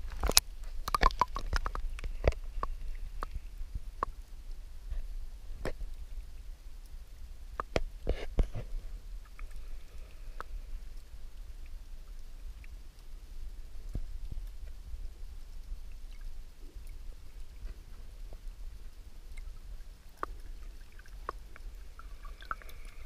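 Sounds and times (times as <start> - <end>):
underwater clicks and knocks: 0.0 - 3.4, 7.6 - 9.6
underwater low rumble: 0.0 - 23.0.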